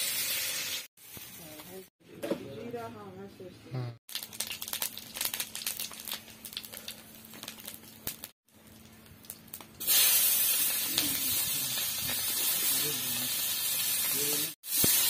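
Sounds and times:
onions sizzling in oil: 0:00.0 - 0:01.7, 0:04.1 - 0:15.0
seeds crackling in hot oil: 0:04.1 - 0:15.0.

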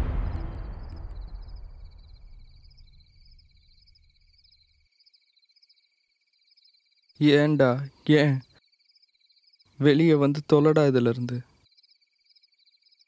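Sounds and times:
deep rumbling boom: 0:00.0 - 0:03.9
crickets chirping: 0:00.0 - 0:13.0.

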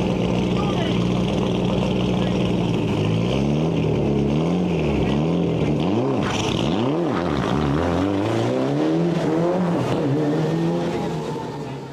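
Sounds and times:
car engine revving: 0:00.0 - 0:11.9.

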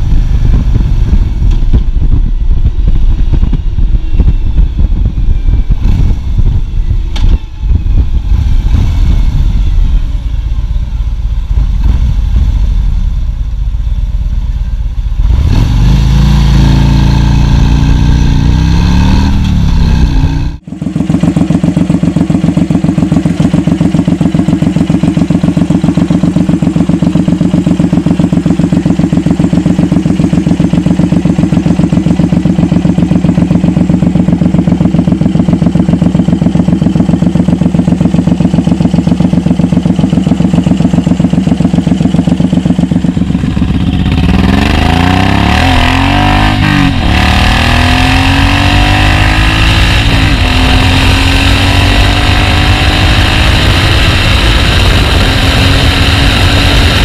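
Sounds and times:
motorcycle engine idling: 0:00.0 - 0:15.2, 0:20.5 - 0:44.8
motorcycle accelerating through gears: 0:15.1 - 0:57.0.

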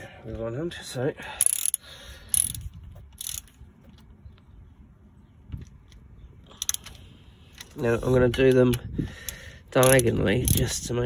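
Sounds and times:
socket ratchet clicking: 0:01.4 - 0:02.6, 0:03.2 - 0:03.5, 0:06.6 - 0:07.0, 0:09.3 - 0:10.7
tools being handled: 0:01.4 - 0:04.1, 0:09.8 - 0:10.7.

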